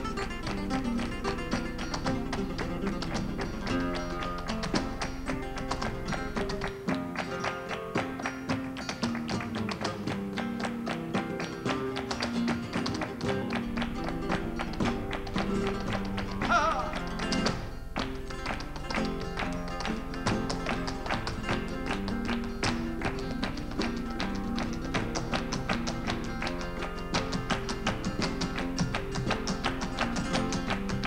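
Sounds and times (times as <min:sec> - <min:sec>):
dancer's footwork taps: 0:00.0 - 0:31.0
flamenco guitars: 0:00.0 - 0:31.0
hand claps: 0:00.0 - 0:31.0
wavering vocal call: 0:16.4 - 0:17.2.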